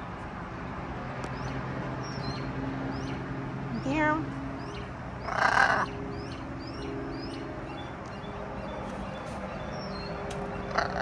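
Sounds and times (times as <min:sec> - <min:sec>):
songbirds chirping: 0:00.0 - 0:11.0
macaw squawking: 0:05.2 - 0:06.0, 0:10.6 - 0:11.0.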